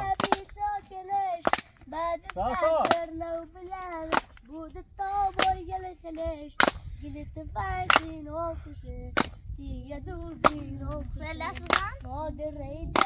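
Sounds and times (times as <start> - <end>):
sharp handclaps: 0.1 - 0.5, 1.4 - 3.1, 4.1 - 4.4, 6.6 - 6.8, 7.9 - 8.1, 11.6 - 12.0
high voice singing a chant: 1.9 - 3.8.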